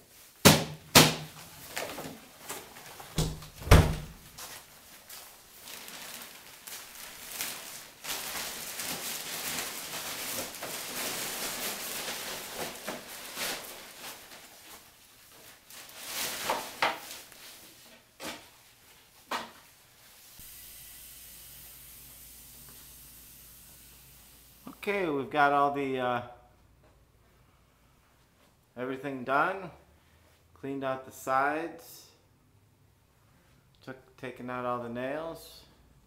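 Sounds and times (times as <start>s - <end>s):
plastic garbage bag rustling: 1.2s - 20.1s
steady faint hiss: 1.2s - 36.0s.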